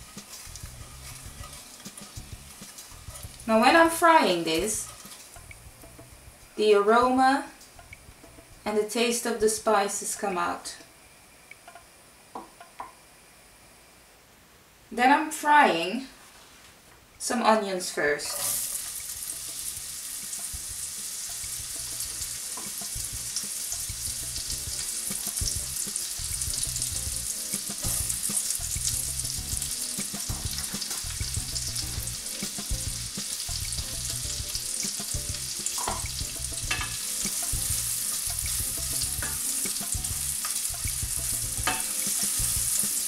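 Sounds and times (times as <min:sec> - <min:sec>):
onions sizzling in oil: 0:00.0 - 0:06.7, 0:17.8 - 0:43.0.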